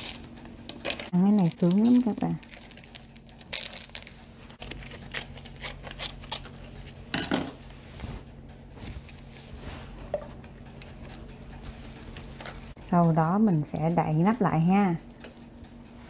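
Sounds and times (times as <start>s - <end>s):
plastic packet rustling: 0.0s - 6.8s.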